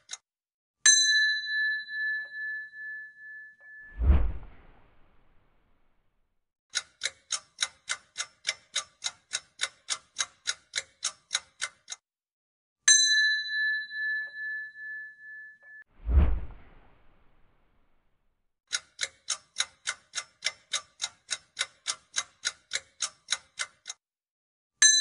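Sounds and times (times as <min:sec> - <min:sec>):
clock-like ticking: 0:00.0 - 0:00.2, 0:06.7 - 0:12.0, 0:18.7 - 0:24.0
bell ding: 0:00.9 - 0:04.0, 0:12.9 - 0:15.9
short noisy swoosh: 0:03.9 - 0:05.6, 0:16.0 - 0:17.8.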